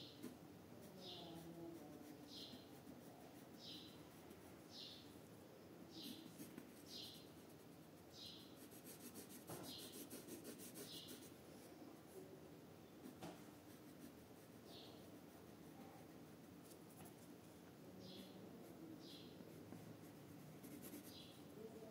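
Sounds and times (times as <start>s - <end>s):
pencil scratching on paper: 1.0s - 4.6s, 6.0s - 11.4s, 13.0s - 17.3s, 18.2s - 21.6s.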